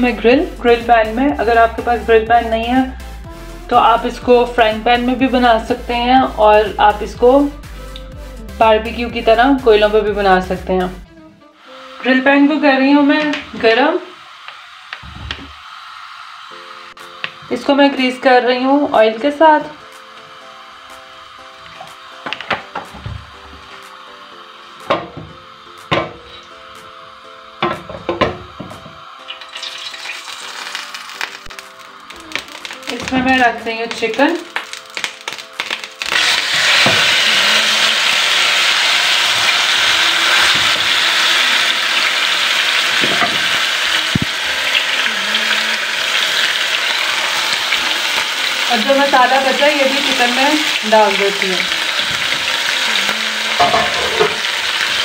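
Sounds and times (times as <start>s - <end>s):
soft background music: 0.0s - 14.4s, 16.2s - 55.0s
chicken sizzling in grill pan: 11.7s - 55.0s.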